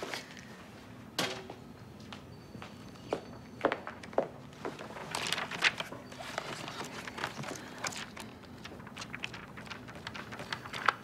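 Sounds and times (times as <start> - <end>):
magazine pages flipping: 3.9 - 11.0.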